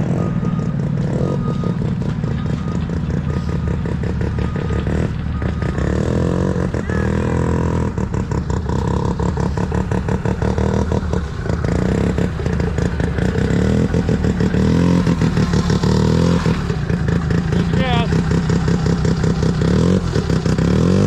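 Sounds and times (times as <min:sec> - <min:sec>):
snowmobile engine running: 0:00.0 - 0:21.0.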